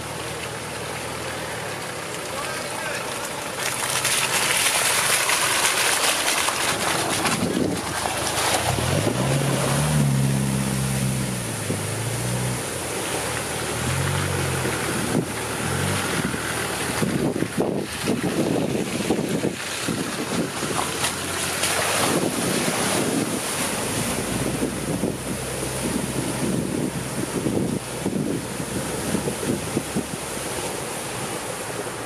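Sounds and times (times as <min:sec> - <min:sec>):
car engine: 0:00.0 - 0:32.0
water churning and sloshing: 0:00.0 - 0:32.0
wind on microphone: 0:16.1 - 0:21.0, 0:22.0 - 0:30.3.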